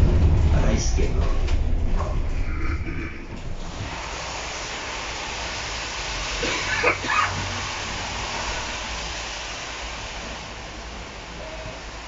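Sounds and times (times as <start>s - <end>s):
low hum: 0.0s - 4.6s
street traffic: 0.0s - 12.0s.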